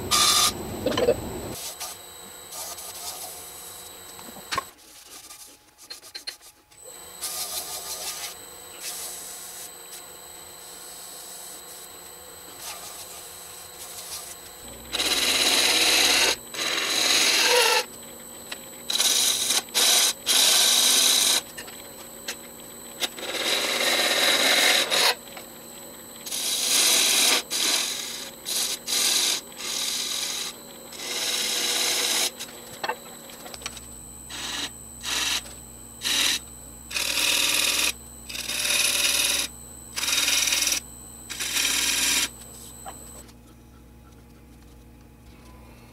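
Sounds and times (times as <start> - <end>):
wood lathe running: 14.6 - 17.8, 26.2 - 32.3, 33.6 - 43.1.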